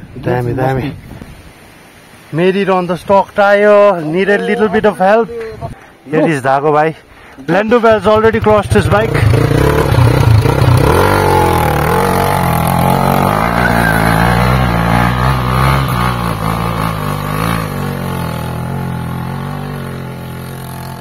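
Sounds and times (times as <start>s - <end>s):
motorcycle engine revving: 8.2s - 21.0s.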